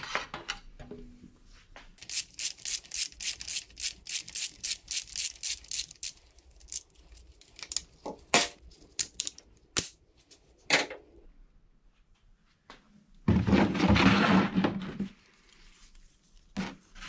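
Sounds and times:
ratchet wrench clicking: 2.0 - 6.8.

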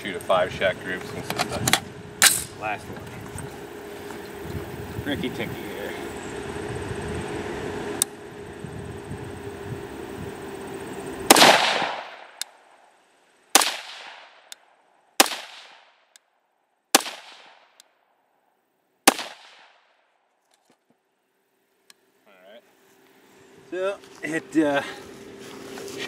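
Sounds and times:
rifle shots with echo: 11.3 - 12.4, 13.6 - 14.5, 15.2 - 16.0, 16.9 - 17.8, 19.0 - 19.9.

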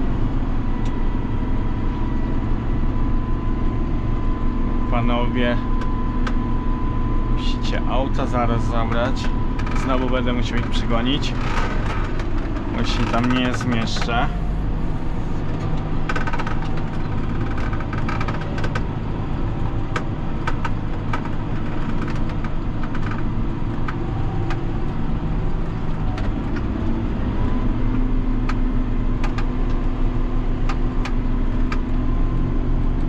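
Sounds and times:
diesel tractor engine running: 0.0 - 33.0
steady hum: 0.0 - 33.0
sharp clicks and rattles: 7.4 - 27.0, 27.9 - 32.1.

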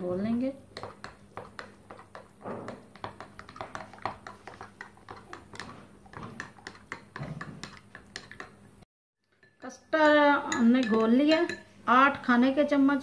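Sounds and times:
spoon clinking against glass: 9.3 - 11.6.

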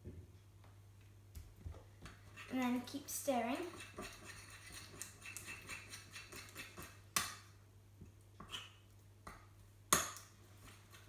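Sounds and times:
spoon stirring sticky slime: 2.1 - 7.0.

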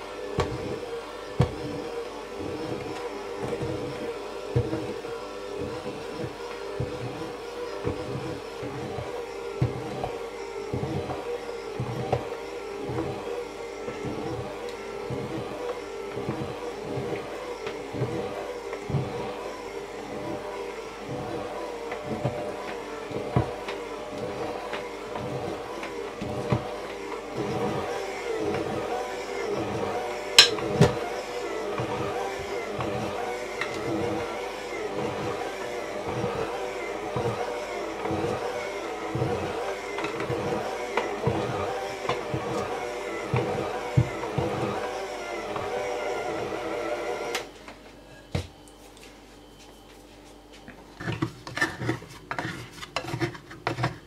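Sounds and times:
electric hand mixer motor humming: 0.0 - 47.6
mixer knocking against bowl: 29.6 - 31.0.

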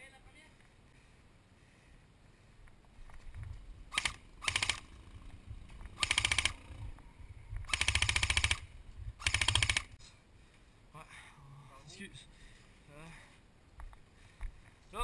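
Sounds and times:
airsoft gun full-auto bursts: 3.9 - 4.9, 6.0 - 6.7, 7.7 - 10.0.

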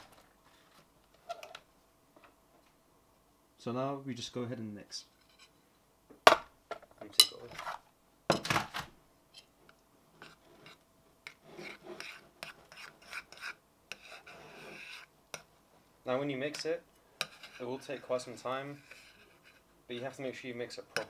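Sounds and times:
spoon scraping bowl: 10.2 - 15.5, 16.4 - 20.3.

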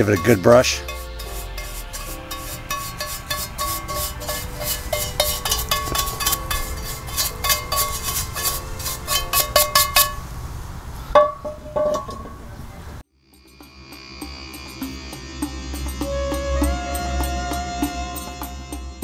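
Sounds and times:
brush scraping a metal pan: 0.0 - 10.3
plucked-string background music: 0.0 - 10.3, 13.4 - 19.0.

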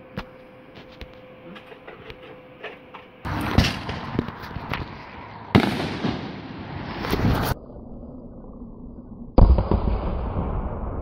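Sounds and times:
low steady hum: 0.0 - 10.9
outdoor noise: 0.0 - 11.0
firework mortar launch thump: 3.3 - 7.6.

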